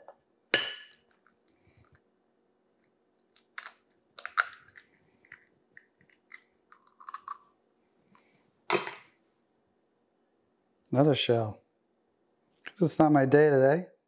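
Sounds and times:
eggshell crackling: 3.2 - 7.6.

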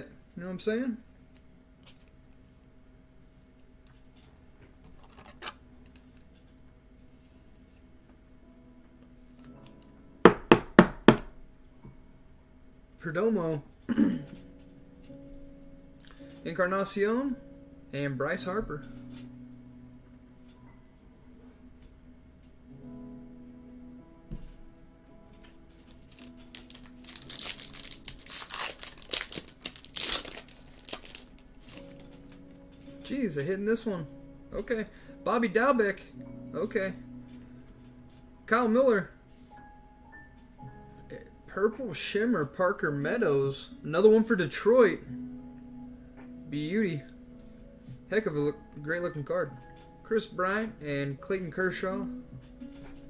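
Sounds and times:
faint background music: 0.0 - 53.0
wrapper tearing and crinkling: 25.9 - 32.6.

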